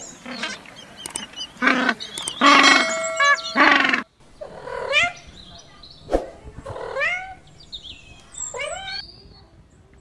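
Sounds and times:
ringing chime tone: 2.4 - 3.9.

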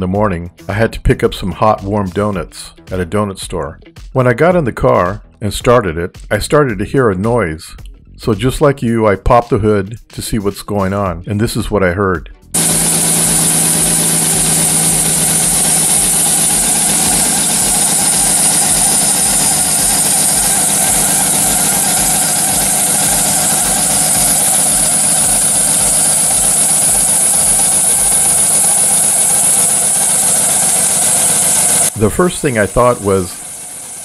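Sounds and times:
car engine idling: 12.6 - 34.0
high-pitched belt noise: 12.6 - 34.0.

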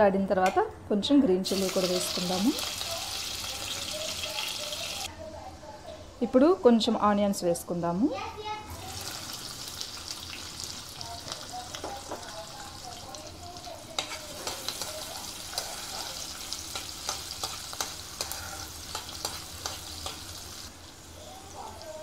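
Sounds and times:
onions sizzling in oil: 1.4 - 5.1, 8.7 - 22.0
spatula scraping a pan: 13.9 - 20.3.

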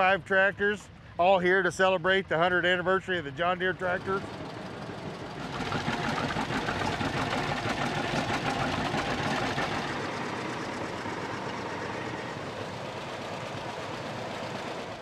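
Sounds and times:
tractor engines chugging: 0.0 - 15.0.

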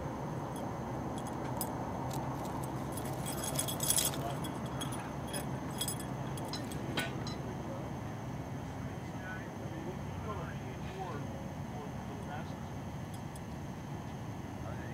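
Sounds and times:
cat collar jingling: 1.2 - 6.9.

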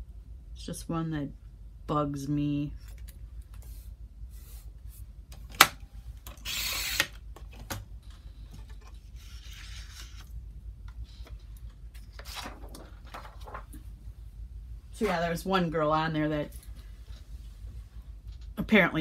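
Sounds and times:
low steady hum: 0.0 - 19.0
paper rubbing: 9.1 - 10.3.

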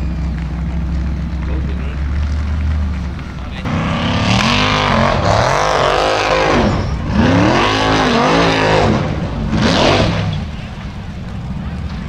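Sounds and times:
buggy engine revving hard: 1.4 - 10.7.

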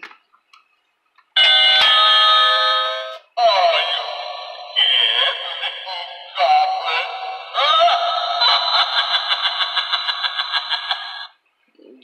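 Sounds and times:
spooky recorded voice from speaker: 2.9 - 12.0.

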